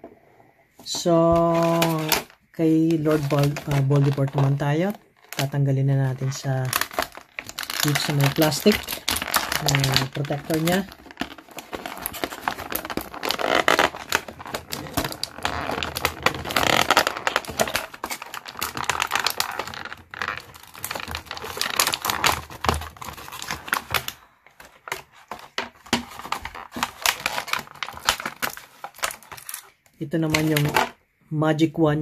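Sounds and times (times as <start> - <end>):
plastic packaging crinkling: 0.8 - 31.0.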